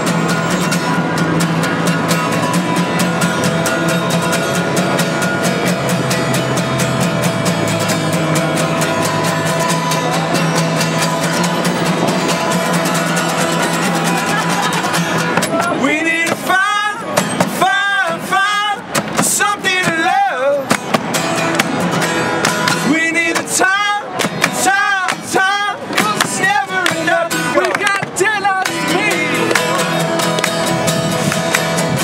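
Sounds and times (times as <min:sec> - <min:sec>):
acoustic guitars strummed: 0:00.0 - 0:32.0
men singing: 0:15.5 - 0:20.7, 0:22.5 - 0:30.3.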